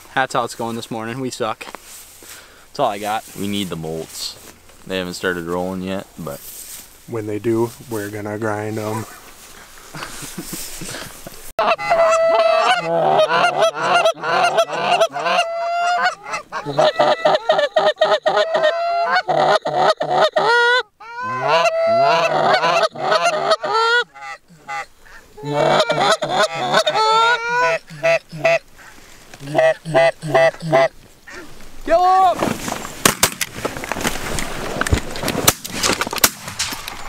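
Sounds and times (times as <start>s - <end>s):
goose calls honking: 11.6s - 31.5s.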